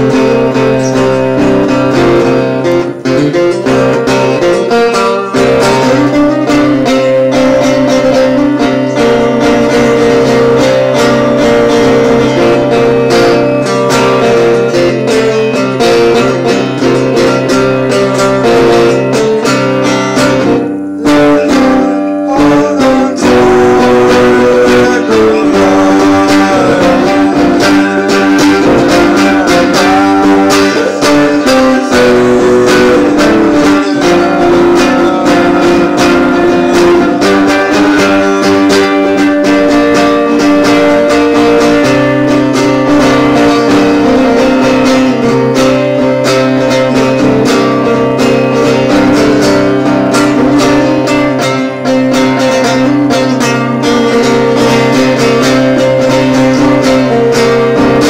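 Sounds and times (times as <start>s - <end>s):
solo guitar picking: 0.0s - 58.0s.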